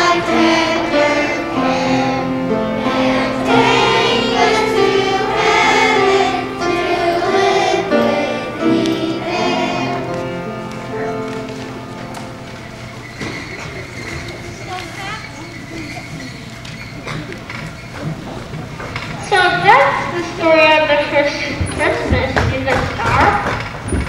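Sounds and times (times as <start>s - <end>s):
children's choir singing: 0.0s - 15.3s
musical accompaniment: 0.0s - 18.8s.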